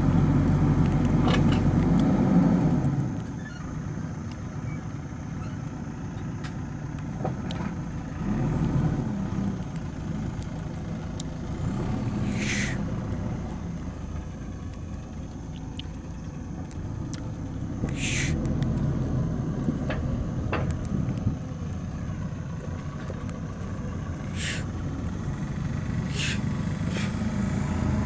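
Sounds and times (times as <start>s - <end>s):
diesel engine running: 0.0s - 28.0s
short sharp hisses: 12.2s - 12.8s, 17.9s - 18.4s, 24.3s - 24.7s, 26.1s - 27.2s.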